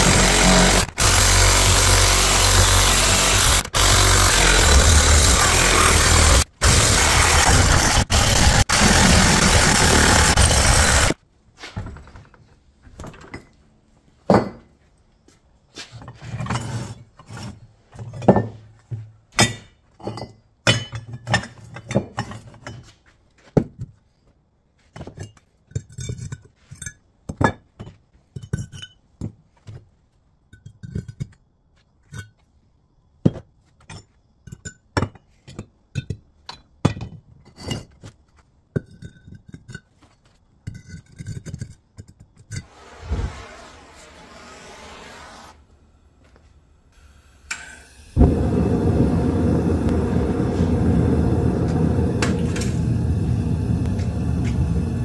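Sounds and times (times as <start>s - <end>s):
power saw cutting metal: 0.0s - 11.2s, 42.6s - 45.8s, 47.0s - 55.0s.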